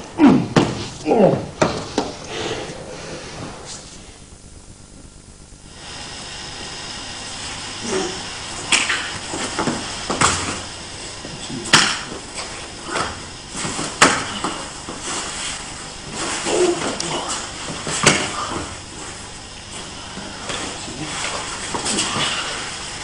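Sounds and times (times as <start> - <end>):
steady hiss: 0.0 - 23.0
slaps on training mat: 9.6 - 10.6, 11.7 - 12.2, 12.9 - 14.6, 17.9 - 18.7.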